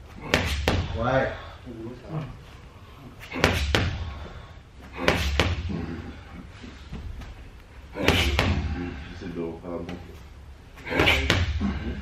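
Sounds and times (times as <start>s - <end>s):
feet stamping on gym mats: 0.2s - 1.0s, 4.9s - 5.7s.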